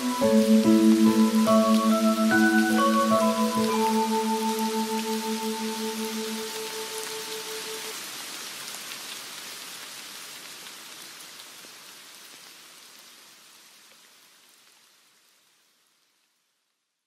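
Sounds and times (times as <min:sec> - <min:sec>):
held musical note: 0:00.0 - 0:07.9
rain falling: 0:00.0 - 0:16.8.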